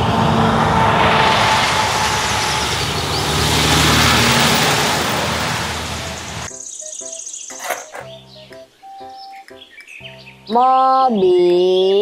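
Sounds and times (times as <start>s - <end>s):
truck driving past: 0.0s - 6.5s.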